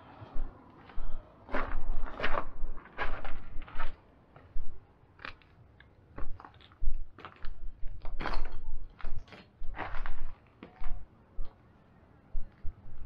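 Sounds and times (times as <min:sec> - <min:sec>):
footsteps crunching on rubble: 0:00.9 - 0:05.5, 0:06.2 - 0:11.0.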